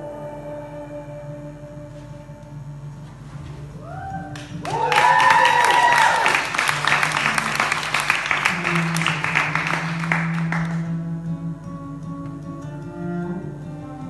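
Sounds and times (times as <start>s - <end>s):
slow music with low notes: 0.0s - 4.6s, 6.8s - 14.0s
audience clapping: 4.3s - 10.9s.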